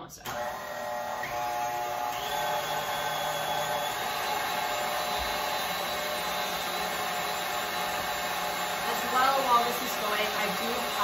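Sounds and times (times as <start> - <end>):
stand mixer motor running: 0.3 - 11.0.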